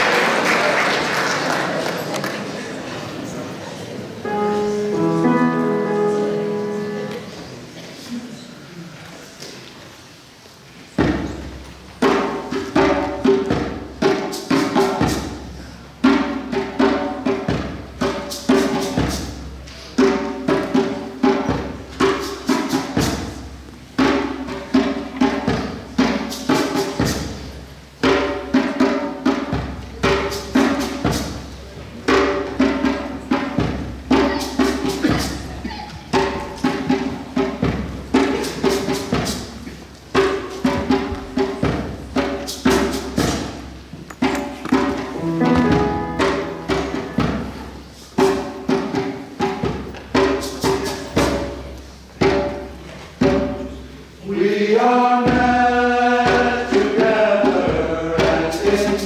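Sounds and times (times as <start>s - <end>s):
frame drum played by hand: 11.0s - 54.2s, 55.2s - 59.0s.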